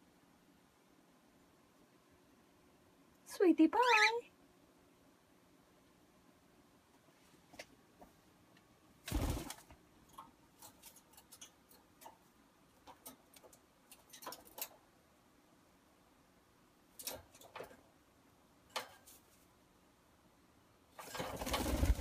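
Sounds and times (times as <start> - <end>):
beak and claws tapping cage bars: 10.0 - 14.9, 16.9 - 17.9, 18.6 - 19.2.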